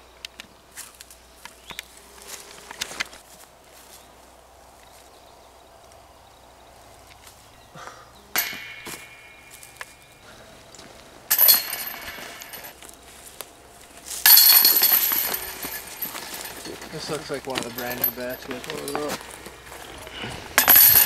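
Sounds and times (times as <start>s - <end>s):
metal chains jingling: 11.3s - 12.8s, 14.2s - 21.0s.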